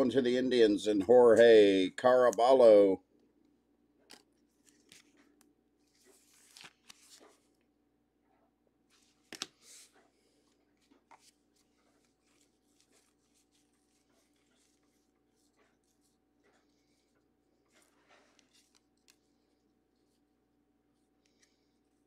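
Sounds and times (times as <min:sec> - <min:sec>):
trading cards rustling: 0:04.1 - 0:07.5, 0:08.9 - 0:20.2
plastic card sleeve handled: 0:04.1 - 0:07.6, 0:08.9 - 0:10.0, 0:10.7 - 0:20.2.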